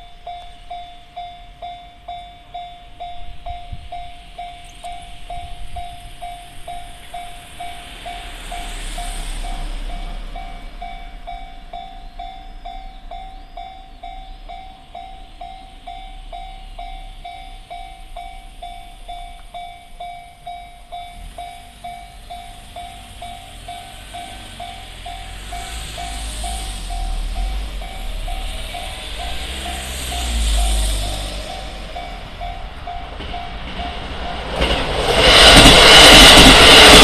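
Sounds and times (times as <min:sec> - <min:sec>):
broad rush of noise: 0:00.0 - 0:37.0.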